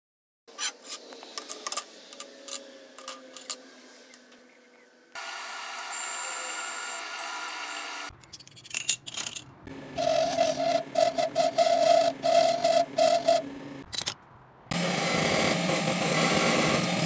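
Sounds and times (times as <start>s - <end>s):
metal lathe drilling: 5.2s - 8.1s, 9.7s - 13.7s, 14.7s - 17.0s
metal parts clinking: 8.2s - 9.6s.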